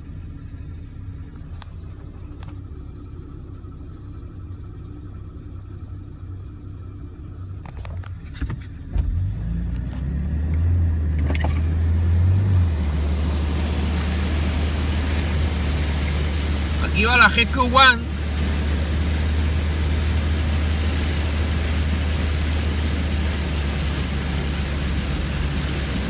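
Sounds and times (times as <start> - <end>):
vehicle engine running: 0.0 - 26.0
water rushing against vehicle: 7.0 - 26.0.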